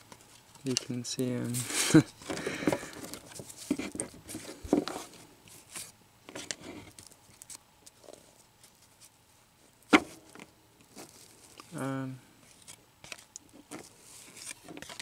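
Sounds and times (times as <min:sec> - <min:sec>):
cards flipped through by hand: 0:12.5 - 0:15.0.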